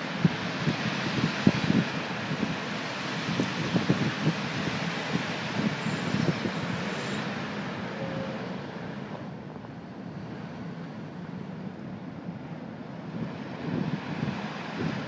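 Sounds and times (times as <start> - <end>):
gusty wind on microphone: 0.0 - 9.1, 12.9 - 15.0
traffic on wet road: 0.0 - 15.0.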